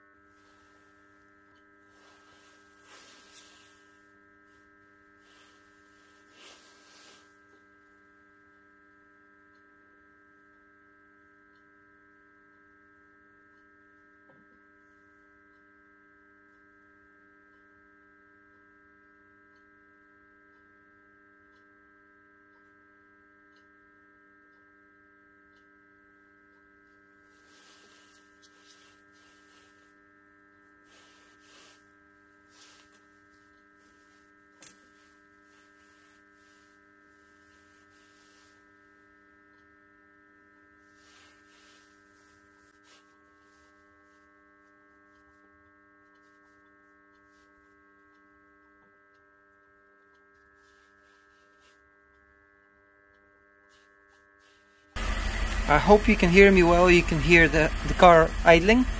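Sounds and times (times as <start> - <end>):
faint electrical hum: 0.0 - 58.9
soft rustles: 0.3 - 7.8, 27.3 - 30.0, 30.7 - 39.0, 40.8 - 44.9.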